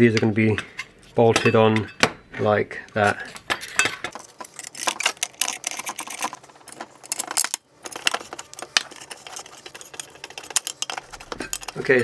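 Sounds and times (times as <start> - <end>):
small metal screws rattling: 4.2 - 12.0.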